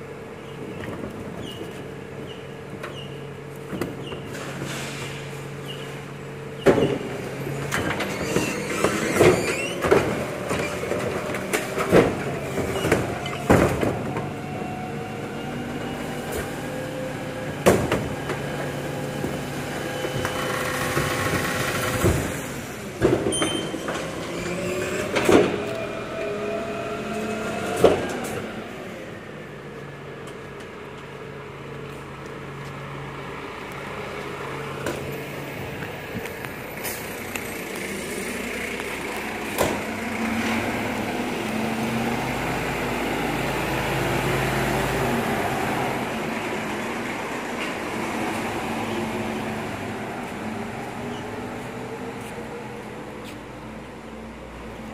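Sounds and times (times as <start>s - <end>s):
truck diesel engine running: 28.4s - 54.8s.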